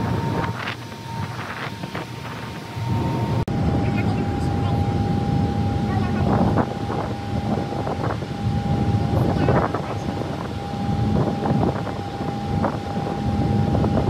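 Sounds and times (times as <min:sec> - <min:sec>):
constant high-pitched tone: 0:00.0 - 0:14.0
ferry engines droning: 0:00.0 - 0:14.0
wind on microphone: 0:00.0 - 0:14.0.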